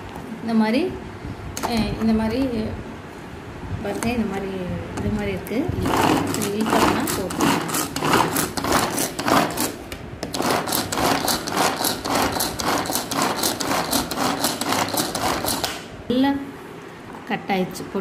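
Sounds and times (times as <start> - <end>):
pull-cord chopper whirring and clattering: 5.8 - 9.6.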